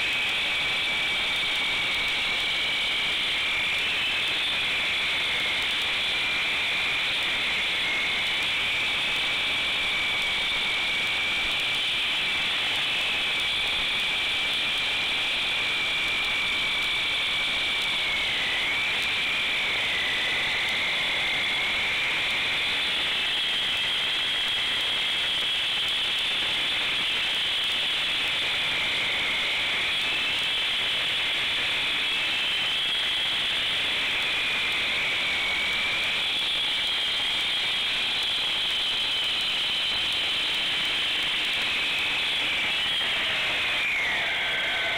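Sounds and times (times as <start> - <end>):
concrete saw cutting concrete: 42.3 - 44.9.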